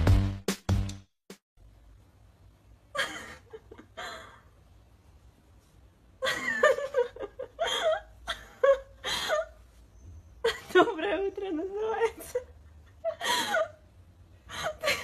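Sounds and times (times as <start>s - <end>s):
person laughing and giggling: 2.9s - 4.6s, 6.2s - 9.6s, 10.4s - 15.0s.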